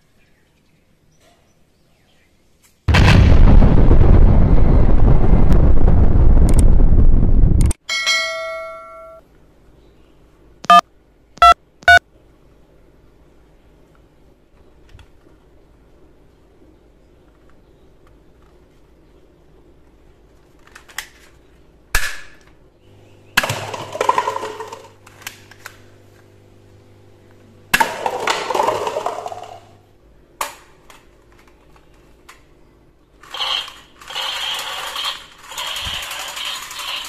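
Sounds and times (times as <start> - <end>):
paper cups clattering: 23.4 - 25.0, 27.8 - 29.7
toy gun electronic sound effect: 33.3 - 37.0.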